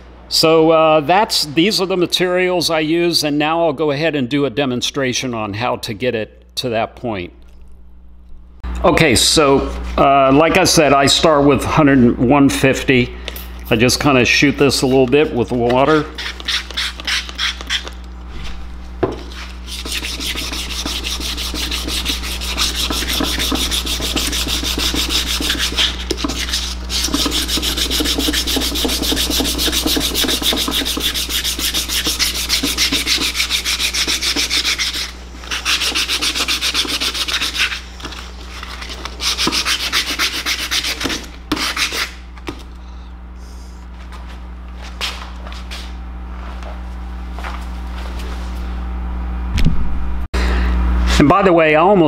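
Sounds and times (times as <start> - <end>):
sandpaper rasping on metal: 15.9 - 18.0, 19.3 - 42.2.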